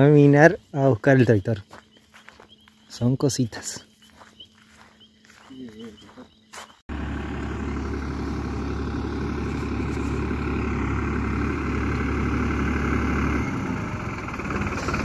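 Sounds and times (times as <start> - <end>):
tractor engine running: 6.8 - 15.0.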